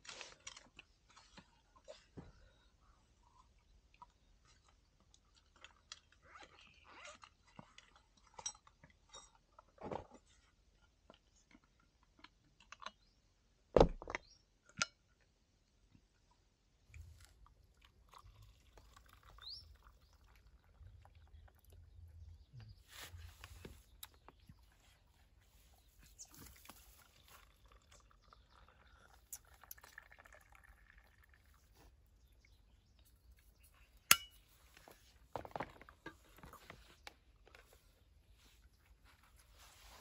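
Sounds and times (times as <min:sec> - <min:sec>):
drink trickling into a mug: 0:17.0 - 0:21.6, 0:26.4 - 0:31.9
sharp clink: 0:34.1 - 0:34.4.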